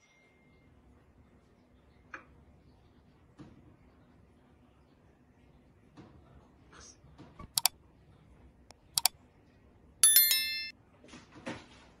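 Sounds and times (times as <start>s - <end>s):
notification bell ding: 10.0s - 10.7s.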